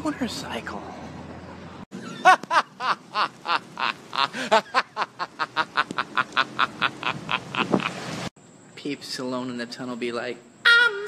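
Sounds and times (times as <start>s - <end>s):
man laughing hard: 2.0s - 8.0s.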